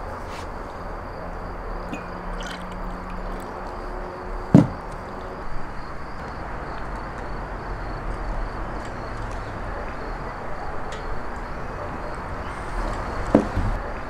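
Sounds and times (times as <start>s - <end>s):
outdoor background hiss: 0.0s - 14.0s
jug knocking on wooden table: 4.6s - 4.8s.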